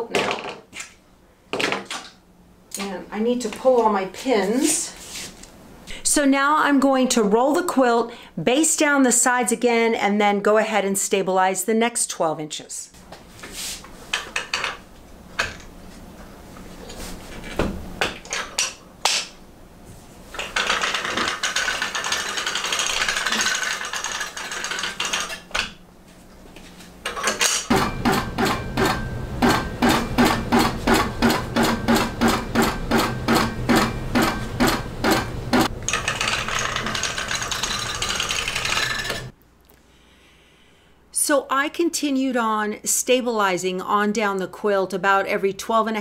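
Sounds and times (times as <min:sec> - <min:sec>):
quilting machine motor hum: 0:27.7 - 0:39.3.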